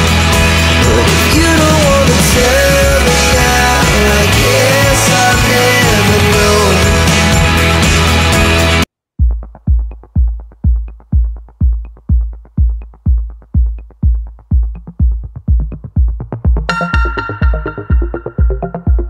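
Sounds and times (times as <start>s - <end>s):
loud music track: 0.0s - 8.9s, 15.9s - 19.0s
electronic kick-drum beat: 0.0s - 19.0s
synthesizer melody: 0.4s - 5.2s, 16.7s - 19.0s.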